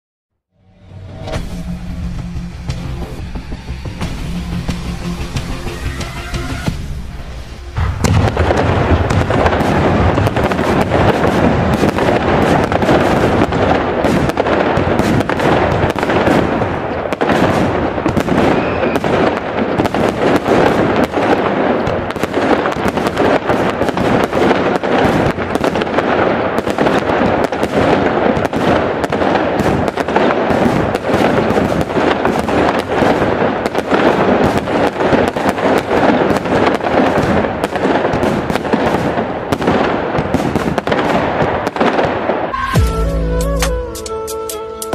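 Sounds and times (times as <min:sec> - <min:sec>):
fireworks bangs and crackles: 0:01.1 - 0:43.8.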